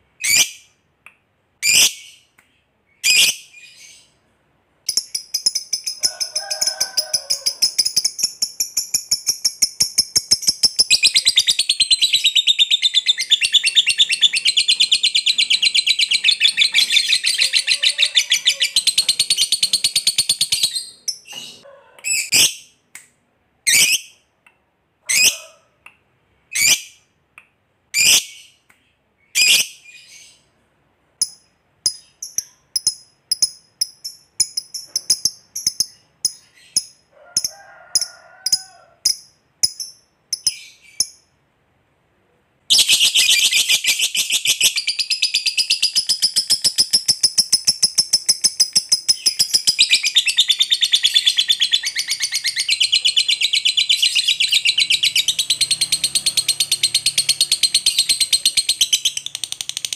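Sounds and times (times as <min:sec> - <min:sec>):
bird chirping and trilling: 0:00.2 - 0:00.7, 0:01.6 - 0:02.3, 0:02.9 - 0:04.2, 0:04.9 - 0:22.7, 0:42.7 - 0:59.7.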